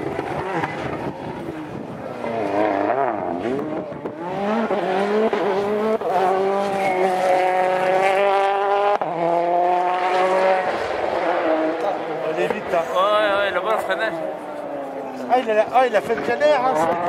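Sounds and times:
rally car engine revving: 0.0 - 17.0.

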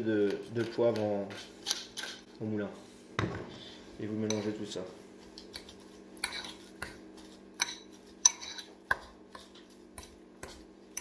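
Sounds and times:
fork clinking and scraping bowl: 0.3 - 2.3, 4.3 - 4.6, 5.4 - 11.0.

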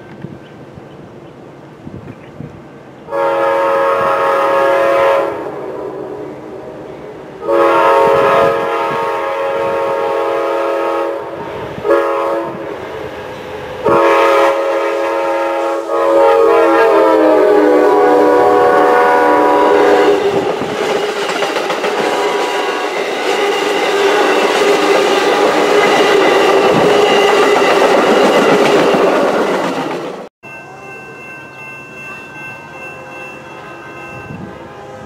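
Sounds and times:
rumble of oncoming train: 0.0 - 35.0
train air horn blasts: 3.1 - 12.8, 13.8 - 20.6, 21.9 - 29.7, 32.8 - 35.0.

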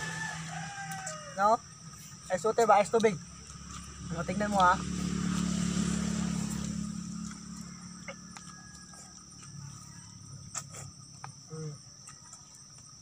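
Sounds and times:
high-pitched insect chorus: 0.0 - 13.0
low hum: 3.1 - 11.0.

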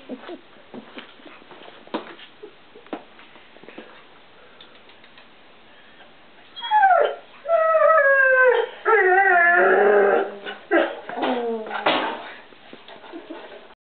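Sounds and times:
dog howling and whining: 6.5 - 12.0.

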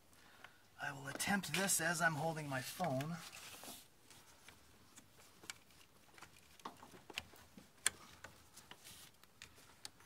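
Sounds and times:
hose clicking against plastic parts: 4.4 - 10.0.

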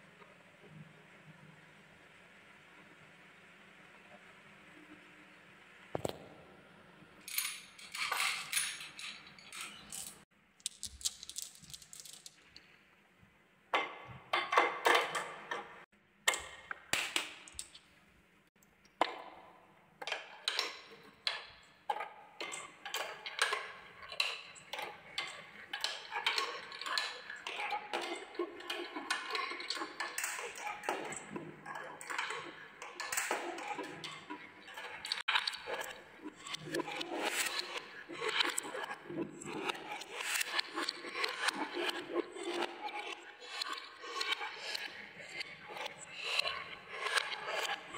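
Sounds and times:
marbles clacking on wooden tracks: 9.8 - 12.6.

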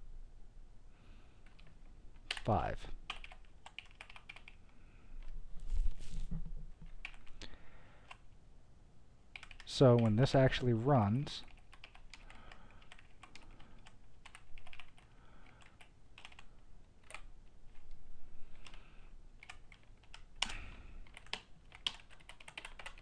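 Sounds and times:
computer keyboard typing: 1.4 - 4.6, 7.0 - 7.4, 9.3 - 10.2, 11.4 - 17.3, 19.4 - 23.0.

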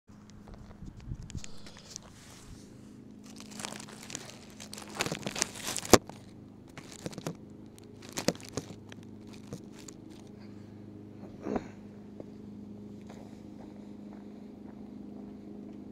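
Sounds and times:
faint steady hum: 0.1 - 15.9
wood chips crunching: 1.4 - 10.4.

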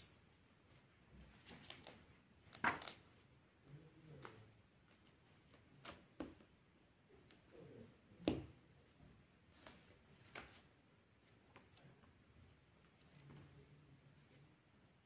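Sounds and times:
paper rustling: 1.2 - 3.2.

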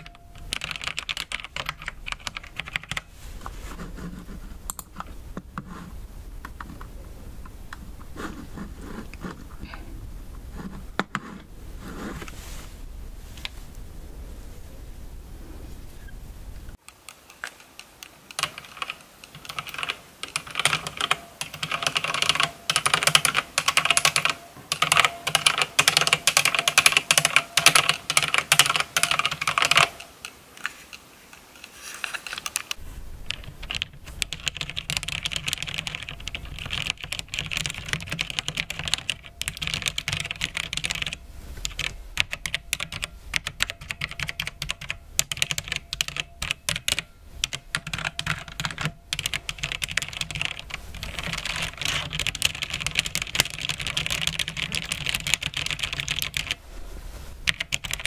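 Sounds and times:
typing on mechanical keyboard: 0.0 - 3.1, 16.8 - 30.3, 32.0 - 56.6, 57.4 - 58.0
low steady hum: 0.0 - 16.8, 29.0 - 58.0.

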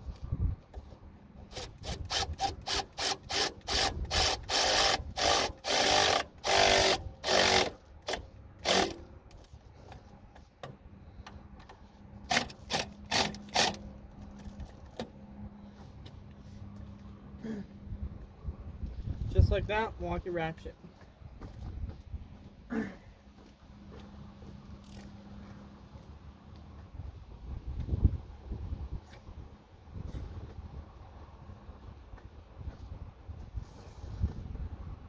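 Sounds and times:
electric ratchet motor bursts: 1.5 - 9.0, 12.3 - 13.8.

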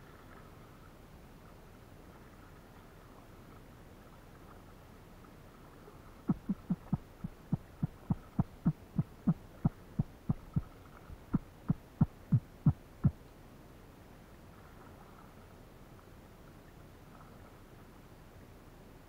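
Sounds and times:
low thumps: 6.3 - 13.1.

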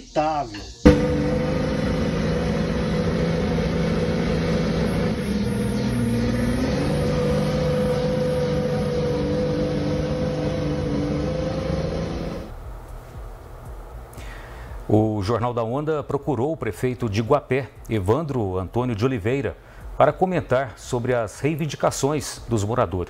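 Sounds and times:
truck diesel engine labouring: 0.9 - 12.5.

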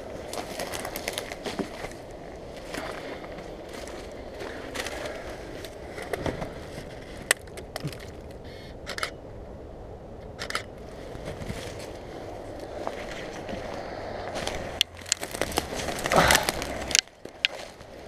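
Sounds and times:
rustle of movement through undergrowth: 0.0 - 8.7, 10.8 - 18.0
camera shutter clicks: 8.9 - 9.2.

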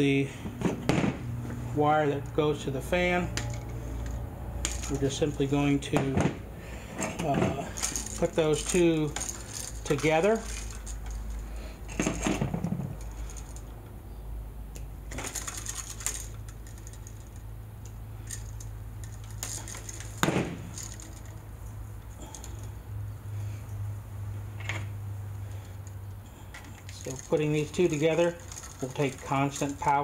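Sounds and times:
steady low hum: 0.0 - 30.0
metallic clicks and rattles: 3.3 - 6.1, 6.9 - 13.8, 14.7 - 22.8, 24.6 - 30.0.

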